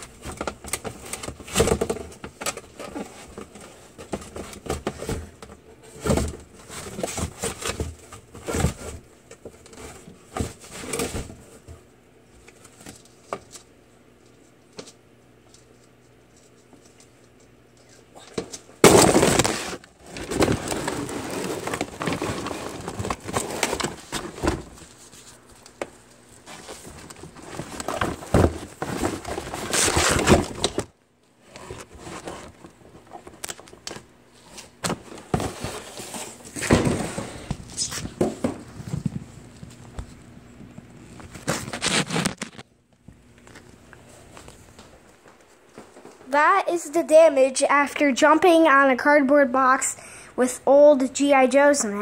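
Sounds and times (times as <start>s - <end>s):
cardboard box being crushed: 18.8s - 25.0s, 26.4s - 30.9s, 34.7s - 38.7s, 41.3s - 42.6s.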